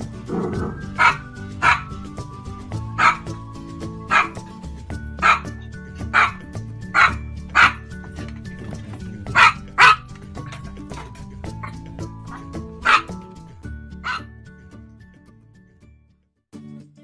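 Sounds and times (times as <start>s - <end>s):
small dog yapping: 0.3s - 2.0s, 3.0s - 3.3s, 4.1s - 4.4s, 5.2s - 5.5s, 6.1s - 6.4s, 7.0s - 7.8s, 9.3s - 10.0s, 10.9s - 13.2s, 14.0s - 14.3s.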